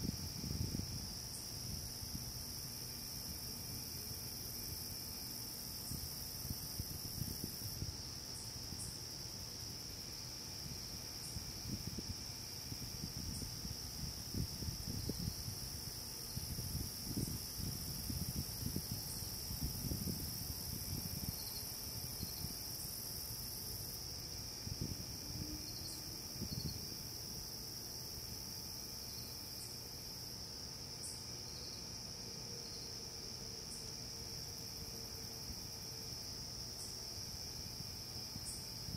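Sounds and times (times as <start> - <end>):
crickets trilling: 0.0 - 38.9.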